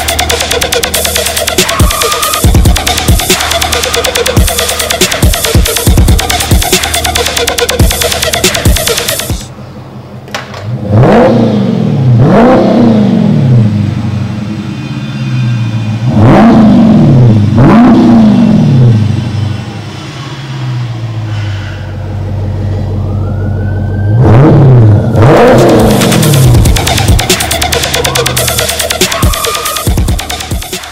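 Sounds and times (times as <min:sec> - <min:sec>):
car engine revving from idle: 0:10.6 - 0:21.4, 0:24.2 - 0:30.5.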